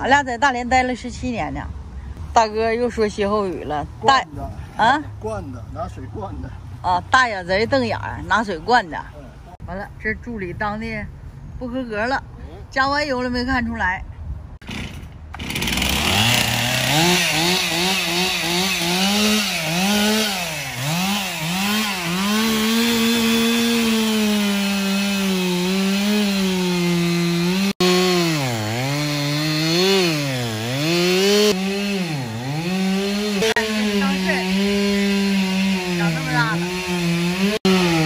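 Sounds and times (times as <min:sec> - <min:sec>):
chainsaw cutting wood: 0:14.6 - 0:38.0.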